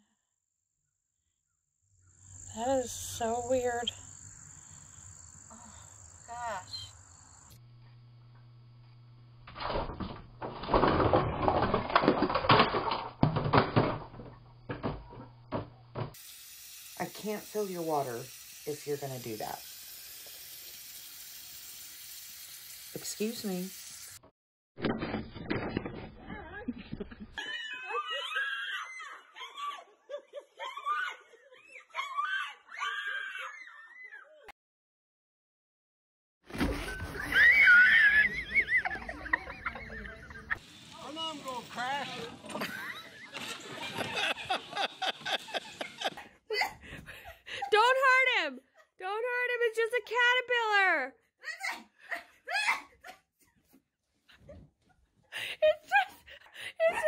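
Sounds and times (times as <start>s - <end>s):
objects clattering and scraping: 9.5s - 16.2s, 24.8s - 26.4s.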